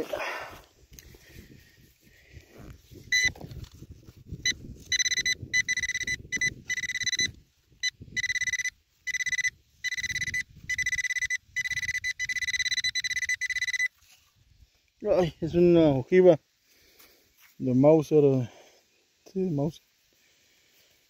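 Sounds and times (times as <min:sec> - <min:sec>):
metal detector pinpointer buzzing: 0:03.1 - 0:03.4, 0:04.4 - 0:14.0.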